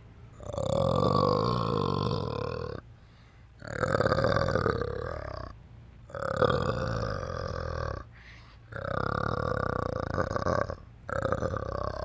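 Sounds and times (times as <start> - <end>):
orangutan belch-like calls: 0.4 - 2.8, 3.6 - 8.1, 8.7 - 12.0.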